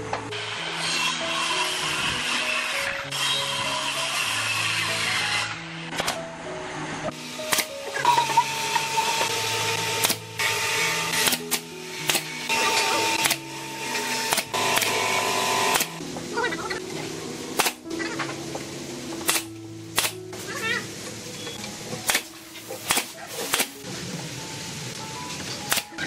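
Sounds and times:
background music: 0.0s - 26.0s
nail gun firing into wood: 7.5s - 7.7s, 9.9s - 13.4s, 14.3s - 16.0s, 17.6s - 17.8s, 19.3s - 20.2s, 22.1s - 23.8s.

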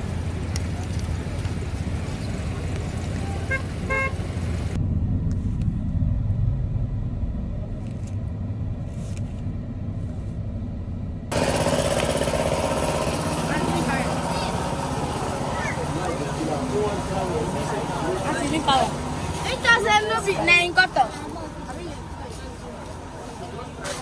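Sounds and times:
vehicle engines rumbling: 0.0s - 24.0s
car horn toots: 3.4s - 4.2s.

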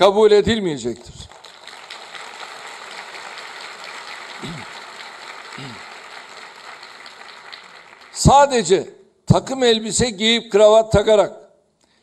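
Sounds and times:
audience applauding: 1.2s - 8.7s.

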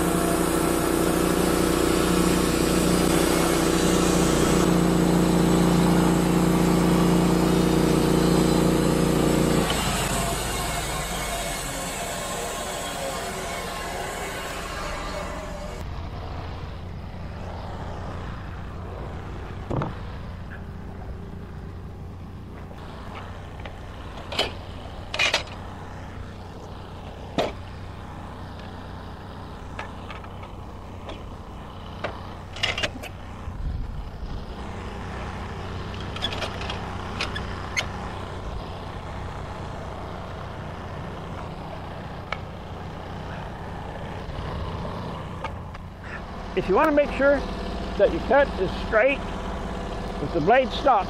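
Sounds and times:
sawmill engine idling: 0.0s - 16.0s, 20.2s - 51.0s.

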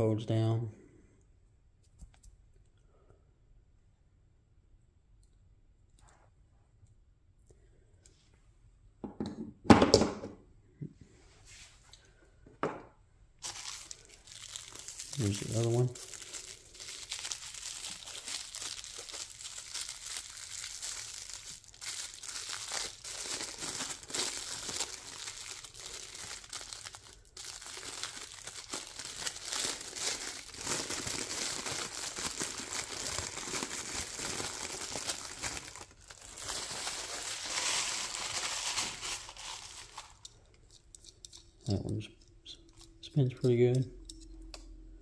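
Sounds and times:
plastic packaging crinkling and tearing: 13.4s - 41.4s.

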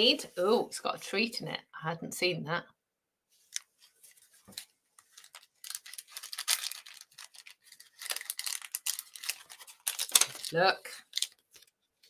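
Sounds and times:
paper and card rustling: 3.4s - 12.0s.

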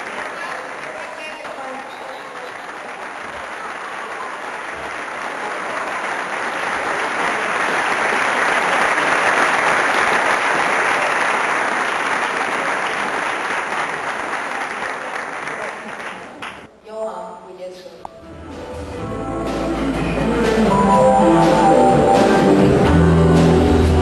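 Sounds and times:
audience applauding: 0.0s - 16.7s.

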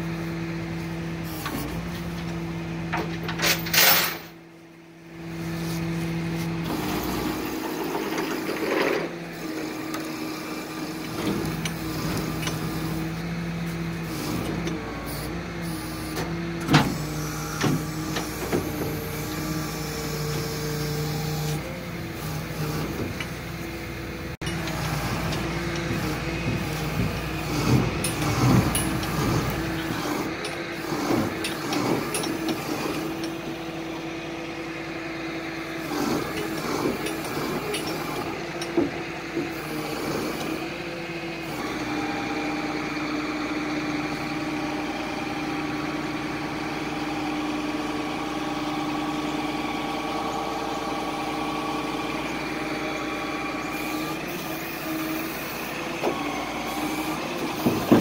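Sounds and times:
tow truck engine and hydraulics hum: 0.0s - 58.0s.

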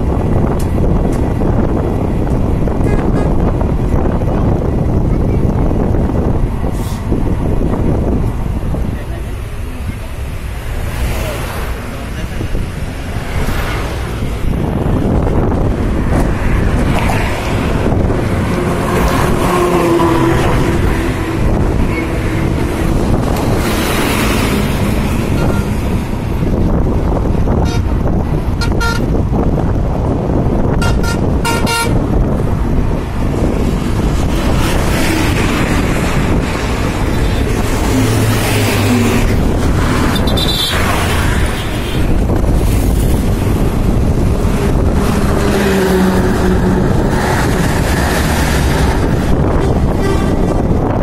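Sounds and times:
train wheels rumbling on rails: 0.0s - 51.0s
wind buffeting microphone: 0.0s - 51.0s
train horn toots: 28.6s - 29.1s, 30.8s - 32.0s, 49.4s - 50.6s.

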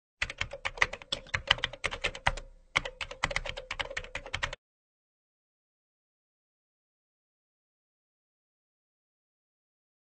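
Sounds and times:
typing on computer keyboard: 0.2s - 4.6s.

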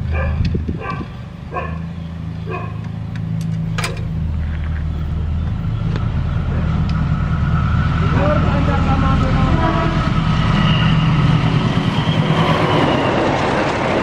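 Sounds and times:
low engine hum: 0.0s - 14.0s
electric train whine: 1.3s - 14.0s.

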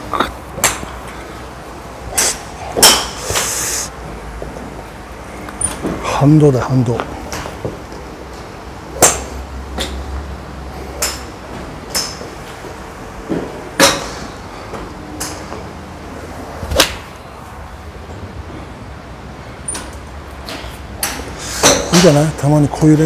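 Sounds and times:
golf clubs striking balls: 0.0s - 1.4s, 2.0s - 3.8s, 7.0s - 10.1s, 10.7s - 15.7s, 16.6s - 17.2s, 19.6s - 22.2s.

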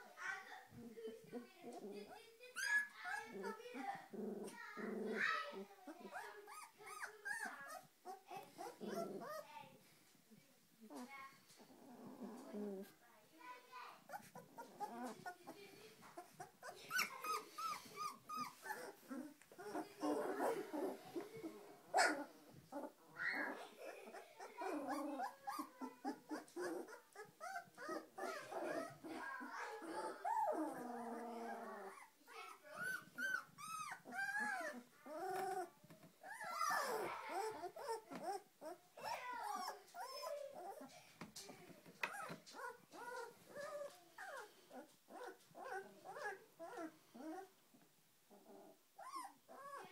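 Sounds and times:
puppies squeaking and whining: 2.5s - 3.9s, 4.5s - 9.5s, 14.1s - 21.4s, 22.0s - 40.9s, 42.0s - 47.5s, 49.0s - 49.9s.

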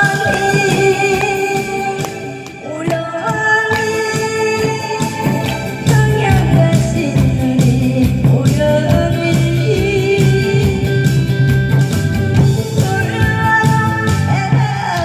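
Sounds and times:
amplified music with steady beat: 0.0s - 2.6s
woman singing into microphone: 0.0s - 11.2s, 12.6s - 15.0s.

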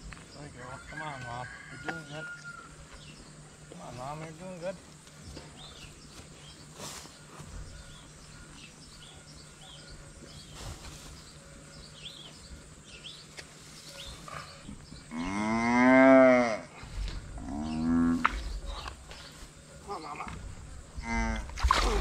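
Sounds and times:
cow mooing: 15.1s - 16.7s, 17.4s - 18.3s, 21.0s - 21.5s.

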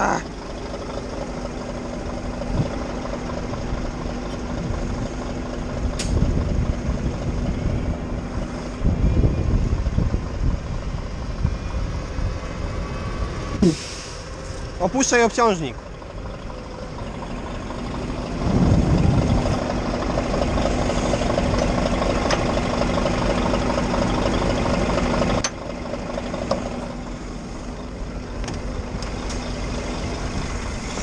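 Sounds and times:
tractor diesel engine running: 0.0s - 31.0s
sharp click: 6.0s - 6.2s.

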